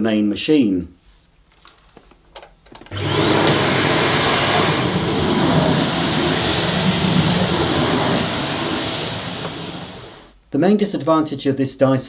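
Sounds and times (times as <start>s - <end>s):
vacuum cleaner motor running: 2.9s - 10.3s.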